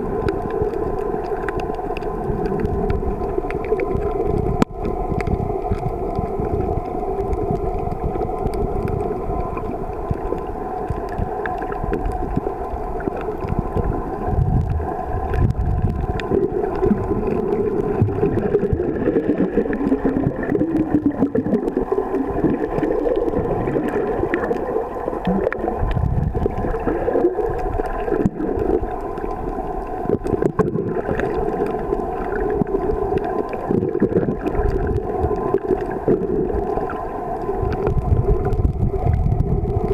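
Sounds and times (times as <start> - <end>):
muffled underwater water noise: 0.0 - 39.9
faint clicks: 0.2 - 13.9.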